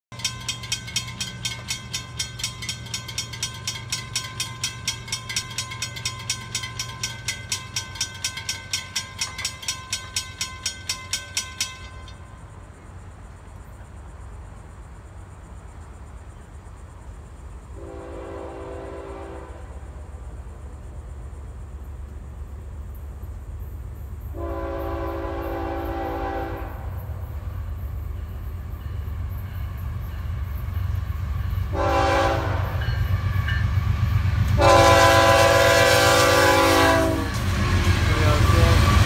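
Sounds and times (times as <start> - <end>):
crossing warning bells ringing: 0.1 - 13.5, 22.9 - 39.0
locomotive air horn: 17.8 - 19.8, 24.3 - 27.0, 31.7 - 32.8, 34.6 - 39.0.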